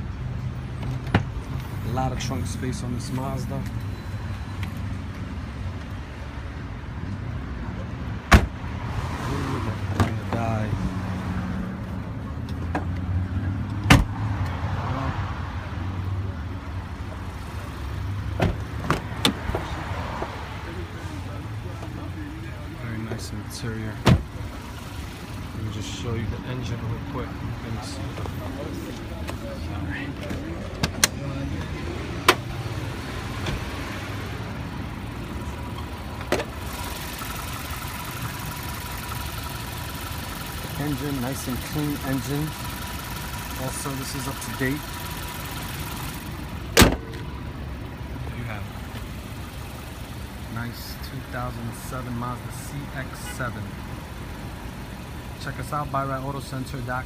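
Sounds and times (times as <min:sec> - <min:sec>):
car door clicks: 0:08.3 - 0:08.6, 0:46.7 - 0:47.2
car engine idling: 0:20.6 - 0:57.0
engine bay whine and hiss: 0:32.2 - 0:57.0.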